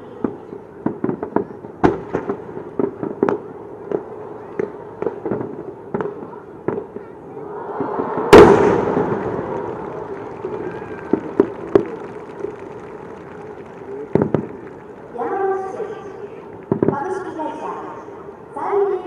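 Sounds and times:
firework pops: 0.2 - 7.0, 8.3 - 15.1, 16.5 - 17.0
loud firework boom with echo: 7.7 - 12.6.

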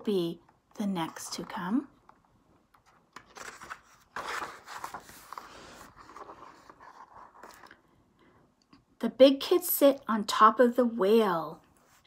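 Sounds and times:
book page turning: 2.7 - 7.8.

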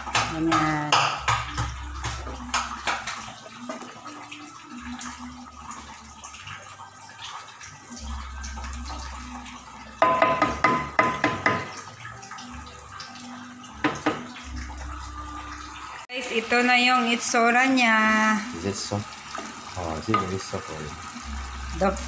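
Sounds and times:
spatula knocking and scraping a pan: 10.0 - 11.8.

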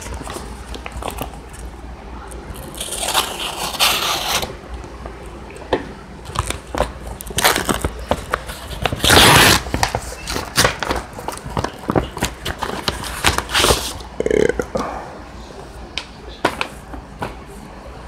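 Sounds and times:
tape and paper ripping: 2.5 - 4.5, 7.2 - 14.0.

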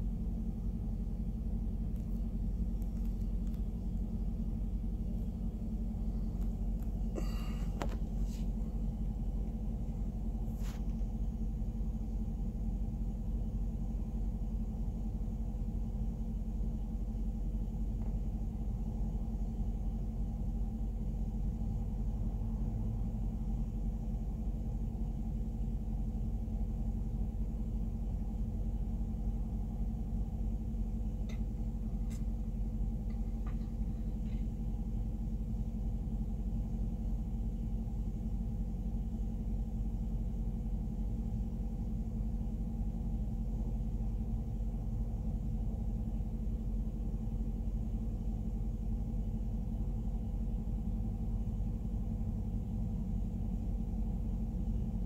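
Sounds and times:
faint clicks: 1.9 - 3.8.

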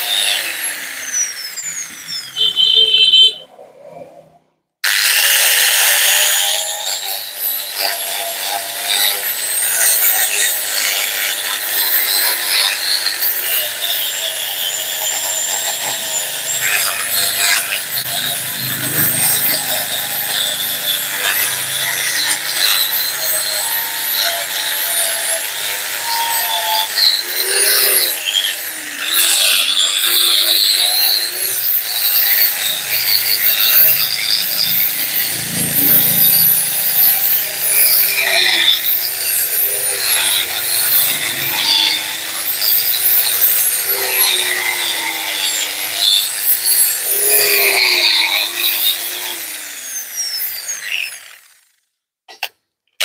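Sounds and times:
grinder motor running: 0.0 - 2.2, 4.9 - 51.8
harsh scraping on metal spring: 11.7 - 28.5, 29.1 - 49.3.

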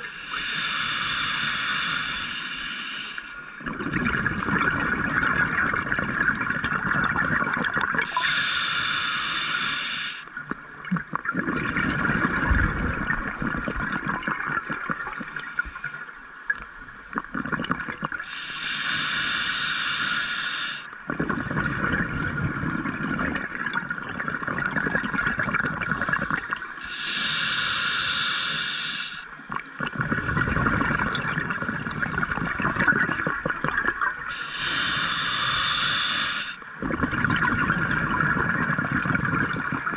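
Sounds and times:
regulator hissing inhales: 0.0 - 3.6, 8.1 - 10.3, 18.2 - 20.9, 26.8 - 29.3, 34.3 - 36.7
bubbling exhales: 3.6 - 8.4, 21.1 - 39.9.

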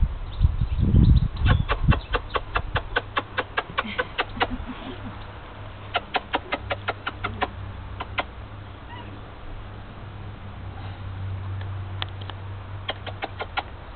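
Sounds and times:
bird clucking calls: 1.4 - 9.2, 12.8 - 13.8.

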